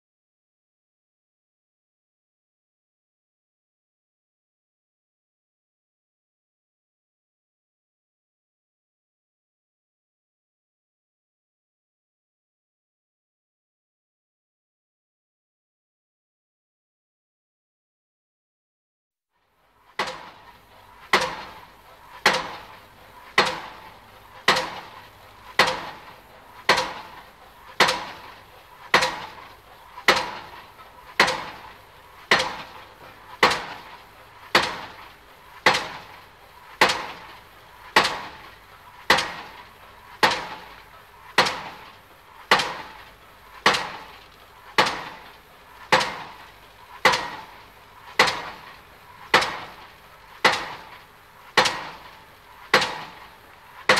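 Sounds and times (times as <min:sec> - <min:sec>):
pile driver hammering: 0:20.0 - 0:20.3, 0:21.1 - 0:21.6, 0:22.2 - 0:22.7, 0:23.4 - 0:23.8, 0:24.5 - 0:24.9, 0:25.6 - 0:26.0, 0:26.7 - 0:27.2, 0:27.8 - 0:28.3, 0:28.9 - 0:29.4, 0:30.1 - 0:30.5, 0:31.2 - 0:31.6, 0:32.3 - 0:32.8, 0:33.4 - 0:33.8, 0:34.5 - 0:35.0, 0:35.6 - 0:36.0, 0:36.8 - 0:37.2, 0:38.0 - 0:38.4, 0:39.1 - 0:39.5, 0:40.2 - 0:40.7, 0:41.4 - 0:41.8, 0:42.5 - 0:43.0, 0:43.6 - 0:44.1, 0:44.8 - 0:45.2, 0:45.9 - 0:46.4, 0:47.0 - 0:47.6, 0:48.2 - 0:48.6, 0:49.3 - 0:49.8, 0:50.4 - 0:50.9, 0:51.6 - 0:52.1, 0:52.7 - 0:53.2.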